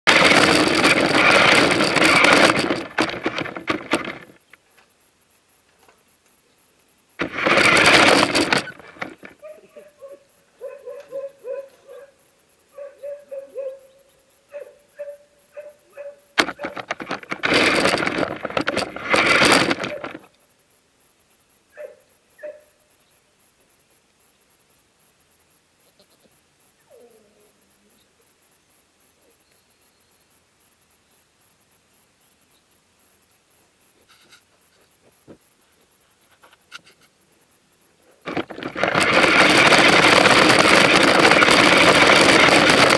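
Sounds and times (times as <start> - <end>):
rapid rattling: 0.0 - 4.6, 7.1 - 9.5, 16.4 - 20.3, 38.2 - 42.9
toy truck driving over dirt: 0.1 - 4.6, 7.2 - 10.2, 15.6 - 20.4, 38.3 - 42.9.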